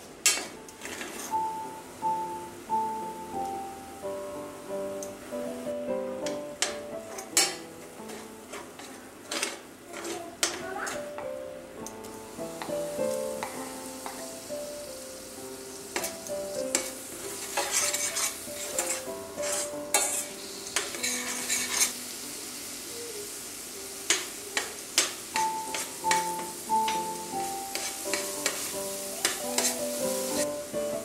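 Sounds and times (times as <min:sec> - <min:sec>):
vegetables sizzling in oil: 0:00.0 - 0:31.0
metal spoon scraping a pan: 0:00.3 - 0:01.4, 0:06.6 - 0:11.1, 0:15.9 - 0:22.0, 0:27.7 - 0:30.5.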